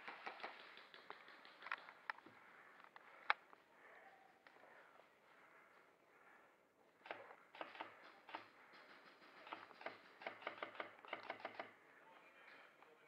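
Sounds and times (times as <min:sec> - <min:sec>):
quiet sharp clicks: 0:09.4 - 0:11.8.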